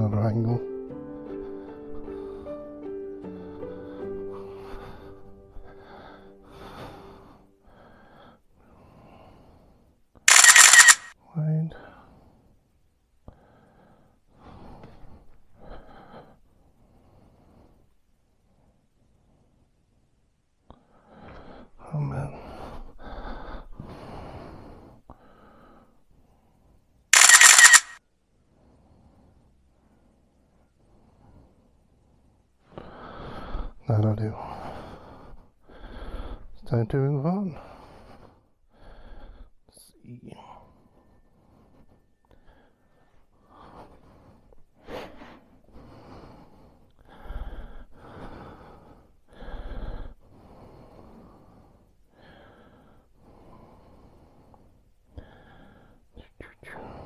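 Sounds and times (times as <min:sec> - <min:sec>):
camera shutter: 0:10.3 - 0:11.1, 0:27.2 - 0:28.0
person breathing close to microphone: 0:22.4 - 0:26.0, 0:28.6 - 0:33.8, 0:40.5 - 0:57.0.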